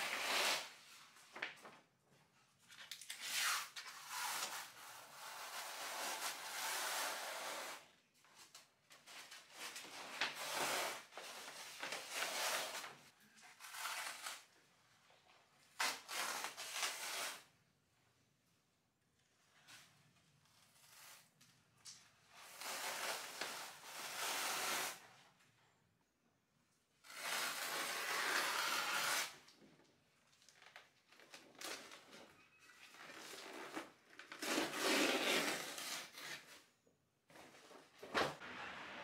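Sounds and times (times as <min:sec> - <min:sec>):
wallpaper ripping: 0:00.0 - 0:01.1, 0:02.8 - 0:07.9, 0:09.2 - 0:14.5, 0:15.7 - 0:17.5, 0:22.3 - 0:25.0, 0:27.0 - 0:29.5, 0:33.1 - 0:36.7.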